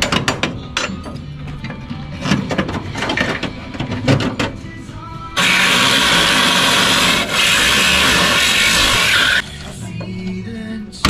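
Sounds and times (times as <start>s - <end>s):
background music: 0.0s - 11.0s
angle grinder cutting metal: 5.4s - 9.4s.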